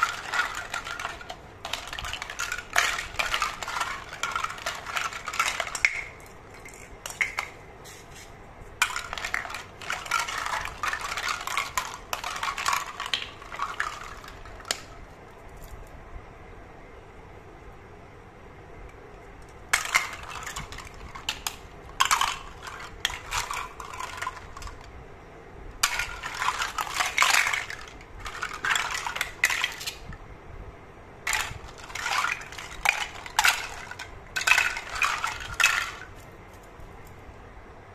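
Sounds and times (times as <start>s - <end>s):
plastic toy pieces clattering: 0.0s - 7.6s, 8.8s - 15.7s, 19.7s - 24.9s, 25.8s - 30.1s, 31.2s - 36.3s.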